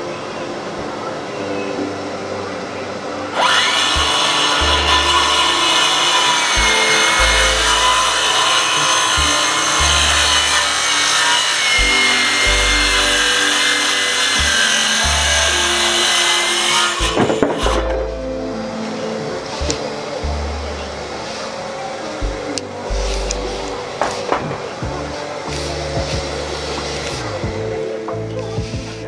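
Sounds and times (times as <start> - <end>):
power saw cutting wood: 3.3 - 18.1
background music with bass line: 3.5 - 5.7, 6.4 - 10.8, 11.8 - 16.2, 16.9 - 21.2, 22.2 - 29.0.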